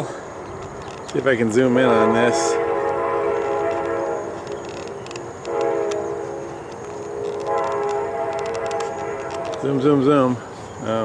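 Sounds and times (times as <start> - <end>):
train horn blasts: 1.7 - 10.1
faint clicking: 3.6 - 9.8.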